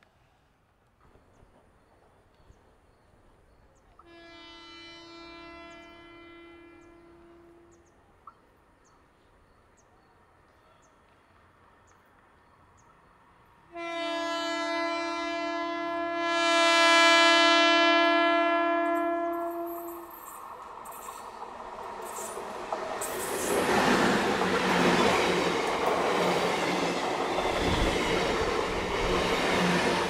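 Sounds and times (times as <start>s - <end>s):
locomotive horn blasts: 4.0s - 7.9s, 13.7s - 20.2s.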